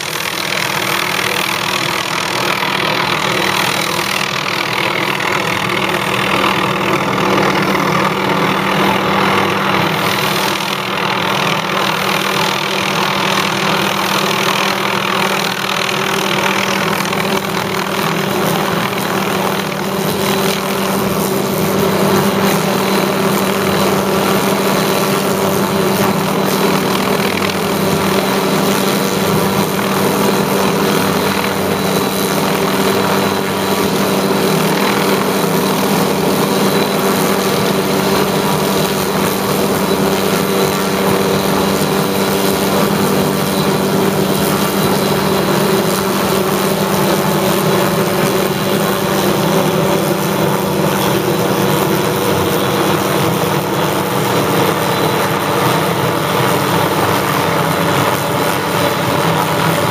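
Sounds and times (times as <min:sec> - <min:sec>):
helicopter engine and rotor drone: 0:00.0 - 0:59.9.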